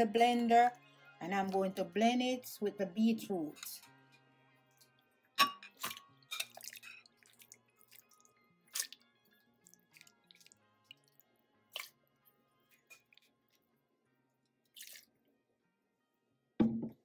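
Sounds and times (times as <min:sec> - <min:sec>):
faint background music: 0:00.0 - 0:17.0
wet squelches: 0:05.8 - 0:09.0, 0:09.6 - 0:12.0, 0:14.6 - 0:15.1.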